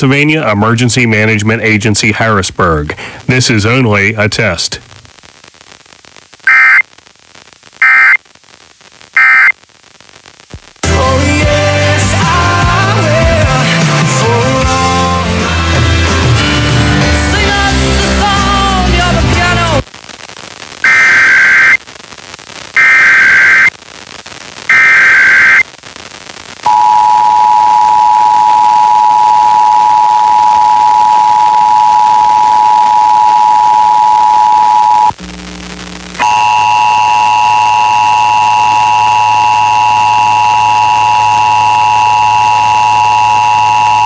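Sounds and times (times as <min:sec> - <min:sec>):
data tone bursts: 0:06.5 - 0:06.8, 0:07.8 - 0:08.2, 0:09.2 - 0:09.5, 0:20.8 - 0:21.8, 0:22.8 - 0:23.7, 0:24.7 - 0:25.6
steady buzzing tone: 0:06.5 - 0:06.8, 0:07.8 - 0:08.2, 0:09.2 - 0:09.5, 0:20.8 - 0:21.8, 0:22.8 - 0:24.0, 0:24.6 - 0:26.1, 0:29.9 - 0:44.0
two-tone alert beep: 0:06.5 - 0:06.8, 0:07.8 - 0:08.2, 0:09.2 - 0:09.5.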